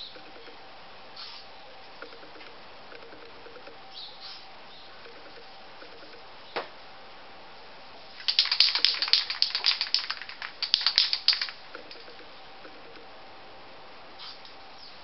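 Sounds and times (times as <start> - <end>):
spray paint can rattling: 8.1 - 13.0.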